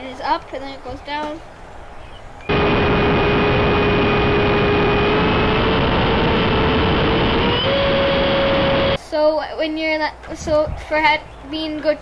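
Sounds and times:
ducted fan whine: 2.4 - 9.0
rush of air: 2.5 - 9.0.

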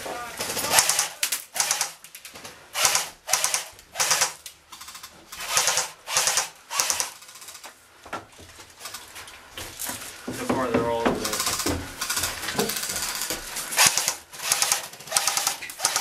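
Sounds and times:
airsoft guns firing bursts: 0.4 - 2.0, 2.8 - 7.6, 11.2 - 16.0.

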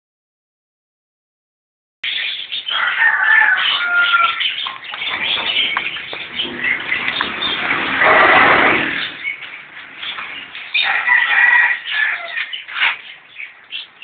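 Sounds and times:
birds chirping and cooing: 2.0 - 14.0
hissing noise: 5.9 - 9.3.

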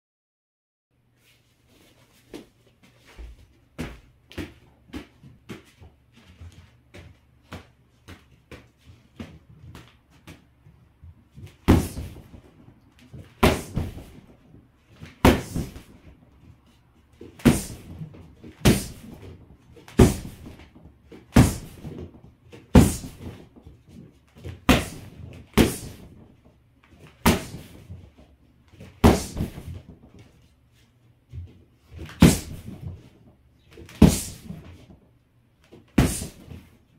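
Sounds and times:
boxing gloves punching heavy bag: 11.6 - 12.5, 13.4 - 14.3, 15.2 - 16.1, 17.4 - 19.3, 19.9 - 22.1, 22.7 - 23.6, 24.6 - 26.2, 27.2 - 27.9, 29.0 - 29.9, 32.2 - 33.0, 33.9 - 34.7, 36.0 - 36.7.

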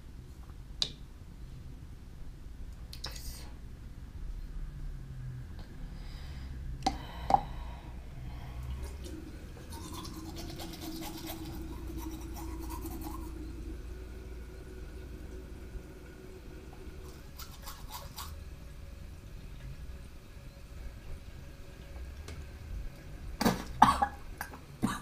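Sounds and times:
steady low hum: 0.0 - 25.0
toothbrush scrubbing teeth: 9.6 - 13.5, 17.0 - 18.4.

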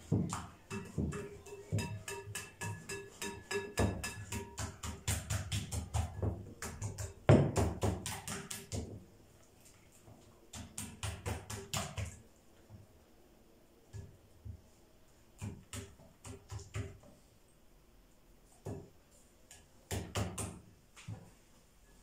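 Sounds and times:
whisk clicking against bowl: 0.3 - 8.8.

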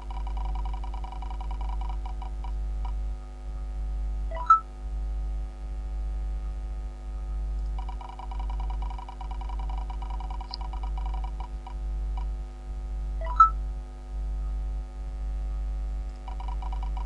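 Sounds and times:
steady electrical hum: 0.0 - 17.0
spinner wheel ticking: 0.1 - 2.3, 7.8 - 11.4, 16.3 - 17.0.

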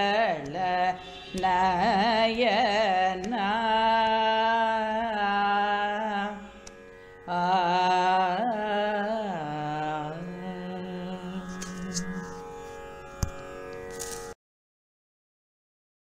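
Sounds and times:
voice singing ornamented notes: 0.0 - 6.5
steady drone: 0.6 - 3.0.

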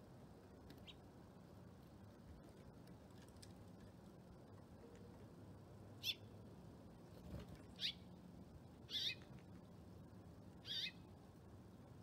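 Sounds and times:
songbird chirping: 7.5 - 9.3, 10.5 - 11.2.

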